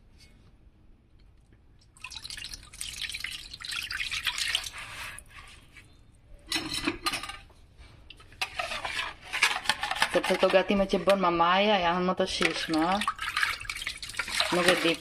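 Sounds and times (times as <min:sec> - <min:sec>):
thick sauce pouring and splashing: 0:01.9 - 0:05.3, 0:12.5 - 0:15.0.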